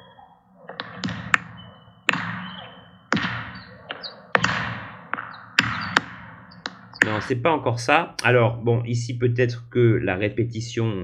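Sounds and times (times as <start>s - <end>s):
tennis ball bouncing on hard court: 2.1s - 7.2s.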